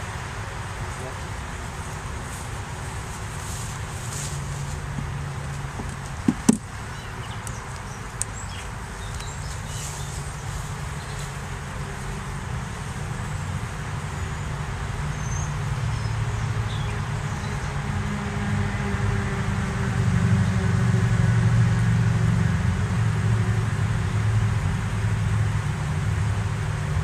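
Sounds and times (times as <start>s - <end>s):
wooden frames knocking on hive box: 5.8s - 6.7s.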